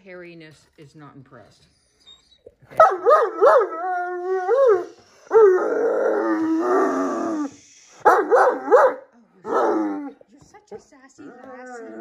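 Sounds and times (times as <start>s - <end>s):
dog howling and moaning: 2.8s - 7.6s, 9.4s - 10.2s, 11.2s - 12.0s.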